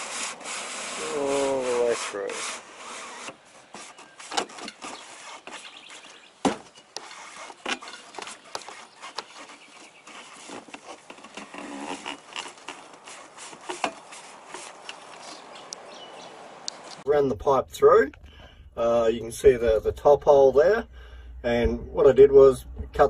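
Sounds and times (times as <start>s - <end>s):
plastic pipe scraping against edges: 0.0s - 15.5s, 17.4s - 23.0s
sharp knocks: 17.8s - 23.0s.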